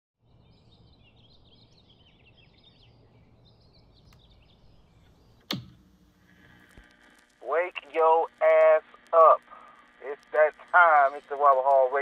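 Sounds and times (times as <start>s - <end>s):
small birds chirping: 0.2s - 6.8s
low steady background hum: 0.3s - 12.0s.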